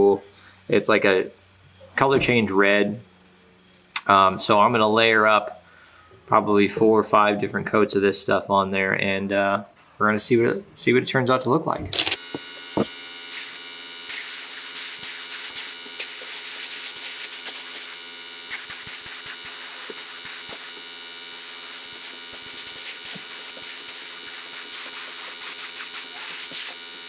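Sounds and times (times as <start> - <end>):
steady hum: 10.3 - 27.0
airbrush spraying hiss: 13.2 - 27.0.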